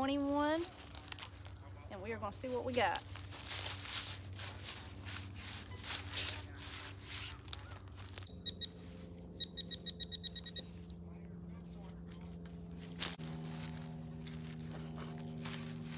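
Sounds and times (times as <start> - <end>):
digging tool crunching leaf litter: 0.0 - 9.2, 11.9 - 15.9
metal detector pinpointer beeping: 8.3 - 10.9.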